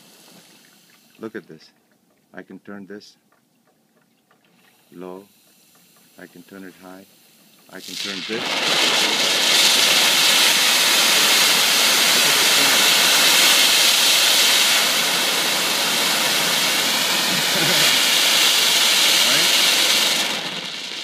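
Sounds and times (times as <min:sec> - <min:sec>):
torch flame hissing: 0:07.7 - 0:21.0.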